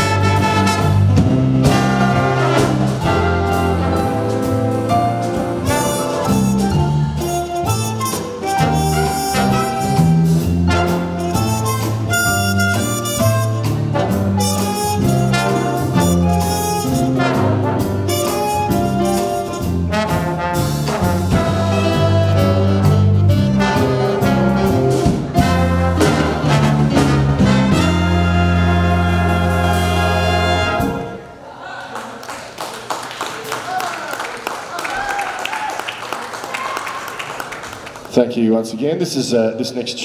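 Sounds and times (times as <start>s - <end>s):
jazz big band playing: 0.0s - 31.4s.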